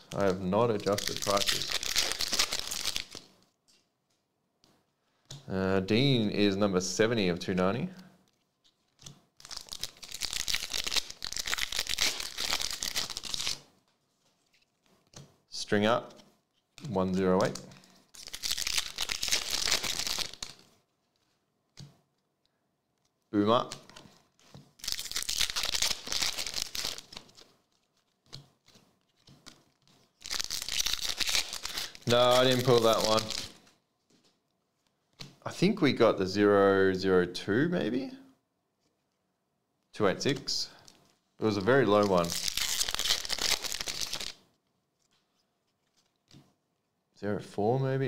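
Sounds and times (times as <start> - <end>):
foil wrapper tearing and crinkling: 0.1 - 3.3, 9.4 - 13.6, 17.8 - 20.7, 24.7 - 28.3, 29.7 - 33.6, 41.8 - 44.4.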